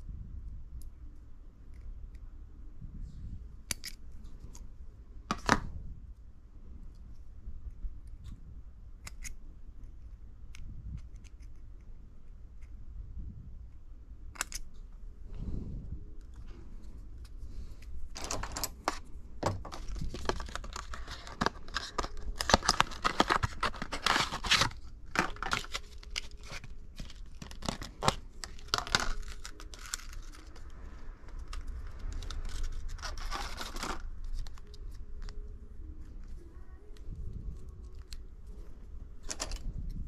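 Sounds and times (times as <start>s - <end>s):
adhesive tape peeling and crinkling: 19.7s - 35.4s.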